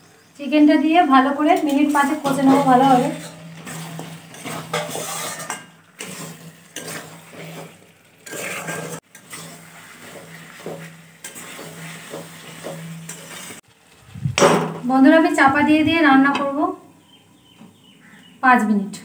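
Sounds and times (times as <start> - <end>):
sizzling in hot oil: 1.1 - 14.2
spatula scraping a pan: 1.6 - 13.6.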